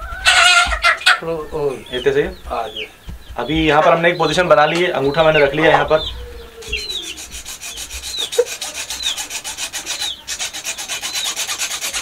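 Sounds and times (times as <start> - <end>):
hacksaw sawing: 6.6 - 12.0.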